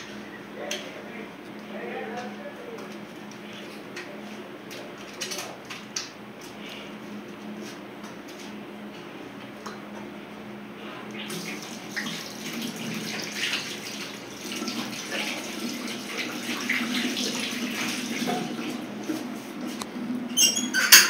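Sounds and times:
water running into basin: 11.1 - 21.0.

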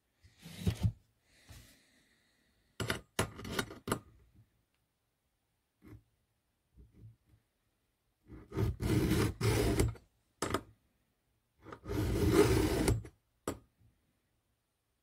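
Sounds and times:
file rasping on chainsaw chain: 11.8 - 13.0.

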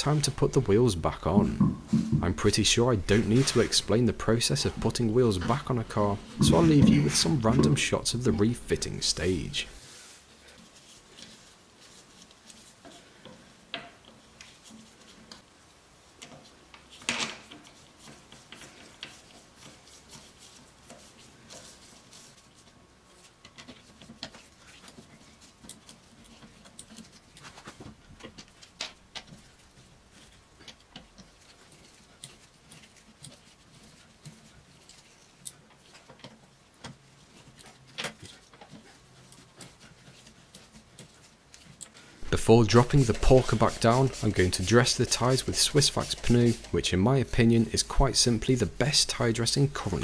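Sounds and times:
knock on wheel: 1.4 - 2.4.

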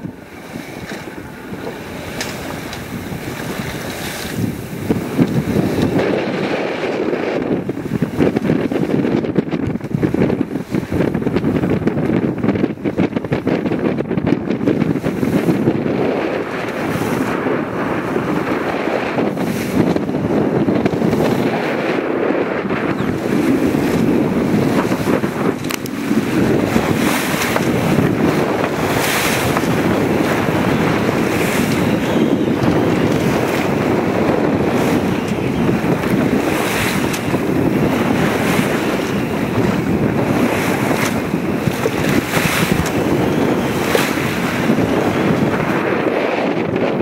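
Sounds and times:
waves rushing past hull: 0.0 - 47.0
wind on microphone: 0.0 - 47.0
water splashes: 22.6 - 45.8.

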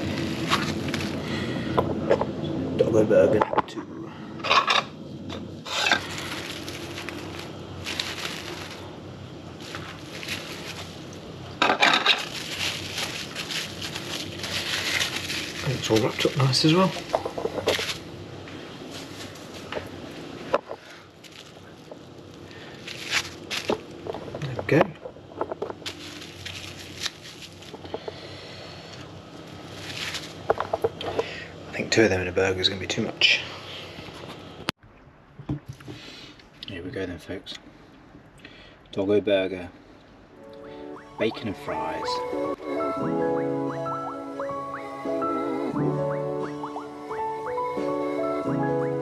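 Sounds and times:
cling film crinkling: 0.0 - 1.4, 5.7 - 20.0, 21.1 - 28.2, 28.8 - 30.8
steady low hum: 0.0 - 48.9.

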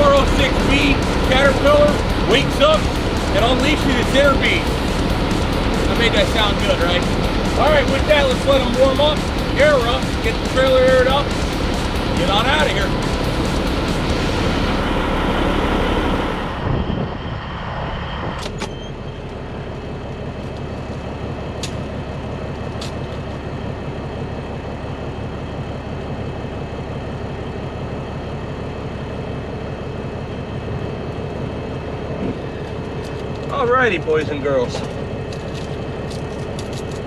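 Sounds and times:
diesel truck engine idling: 0.0 - 37.0.

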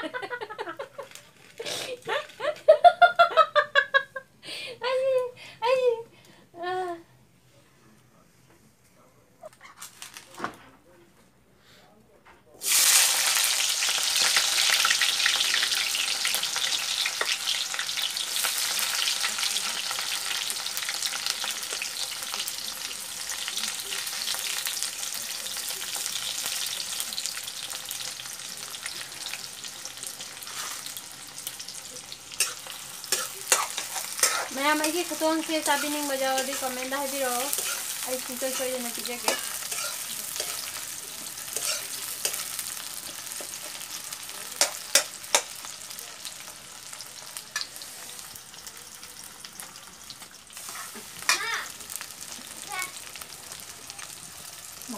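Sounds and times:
food sizzling in hot oil: 12.6 - 54.9.

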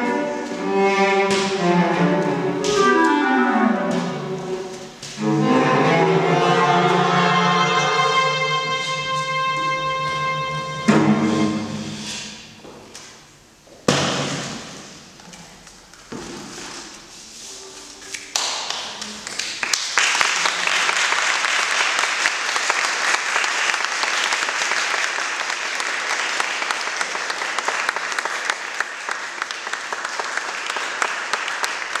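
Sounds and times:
audience applauding: 18.3 - 32.0.

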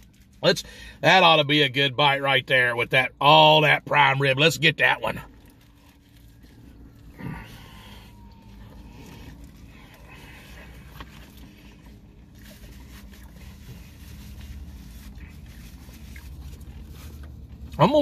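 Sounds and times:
low hum in car cabin: 0.0 - 18.0
man chewing food: 5.3 - 17.8.

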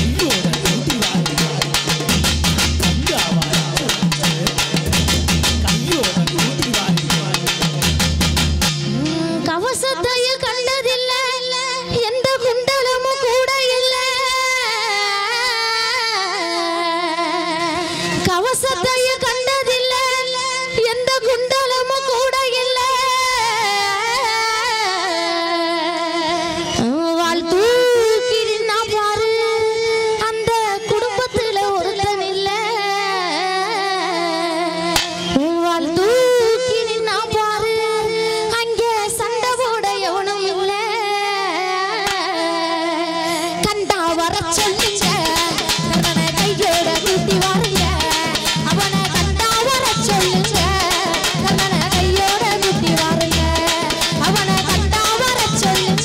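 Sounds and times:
percussive beats: 0.0 - 9.3, 34.9 - 35.4, 44.5 - 56.0
woman singing with vibrato: 8.9 - 56.0.

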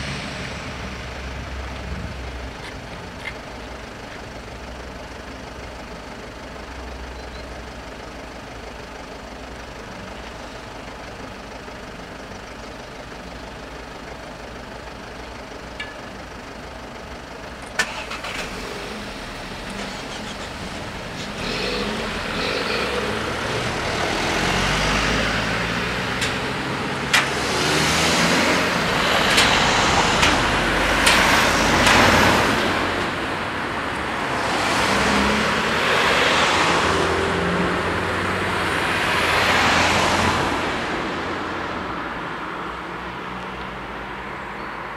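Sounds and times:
cars passing: 0.0 - 4.8, 17.6 - 44.9.

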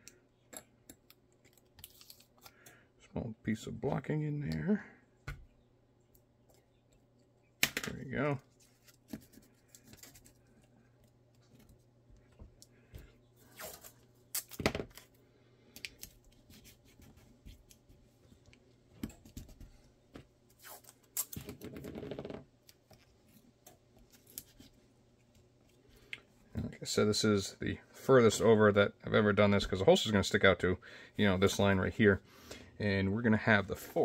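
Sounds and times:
tape tearing: 20.6 - 22.0.

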